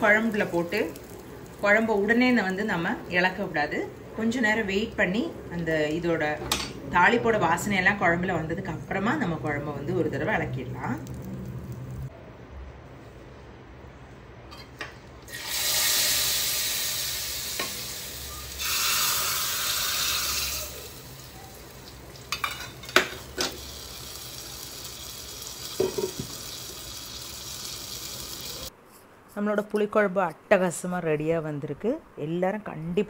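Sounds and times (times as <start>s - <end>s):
hot oil sizzling loudly: 0.0s - 4.8s, 15.3s - 28.7s
metal utensils clinking: 22.2s - 23.7s.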